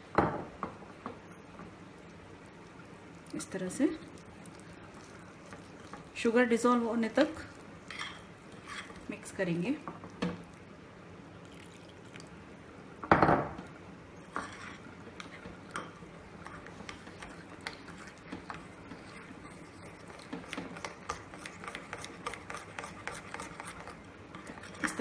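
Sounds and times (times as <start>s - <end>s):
spoon scraping glass bowl: 7.9s - 9.0s, 14.3s - 15.3s, 16.4s - 25.0s.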